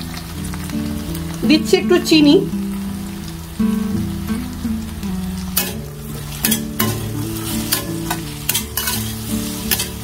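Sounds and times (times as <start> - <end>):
okra sizzling in oil: 0.0 - 10.0
spatula scraping pan: 5.6 - 10.0.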